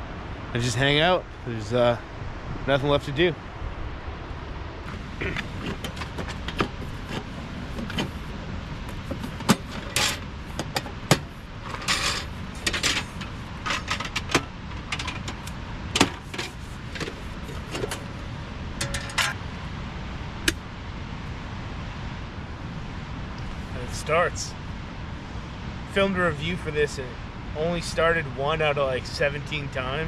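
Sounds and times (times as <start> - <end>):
steady low rushing noise: 0.0 - 13.7, 14.4 - 30.0
metallic clinks and rattles: 18.8 - 19.4.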